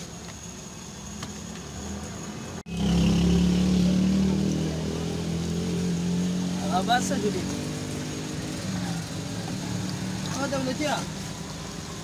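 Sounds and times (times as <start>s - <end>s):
vehicle engine humming: 0.0s - 12.0s
oil sizzling in a wok: 2.6s - 12.0s.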